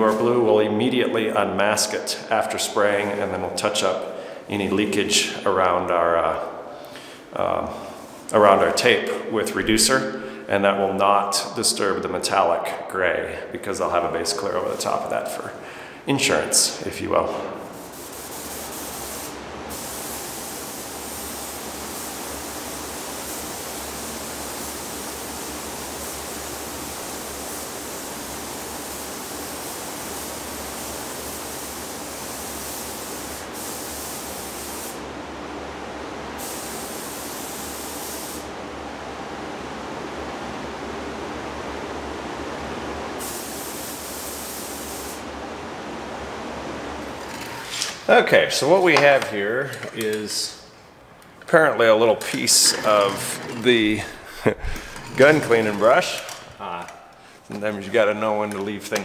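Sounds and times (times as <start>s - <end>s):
paint spray gun hissing: 17.5s - 35.0s, 36.4s - 38.5s, 43.2s - 45.3s.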